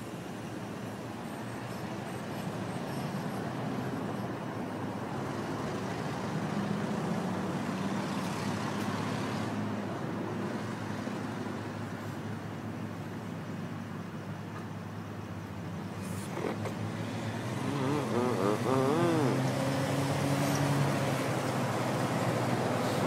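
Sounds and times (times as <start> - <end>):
hum of passing cars: 0.0 - 23.0
vehicle passing: 16.0 - 23.0.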